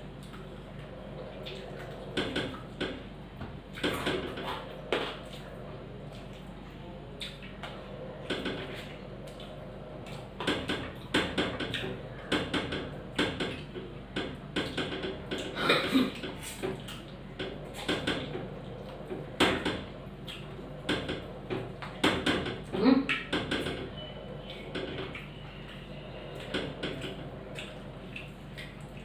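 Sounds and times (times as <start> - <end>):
wet chewing and lip-smacking: 6.1 - 7.8, 24.4 - 29.0.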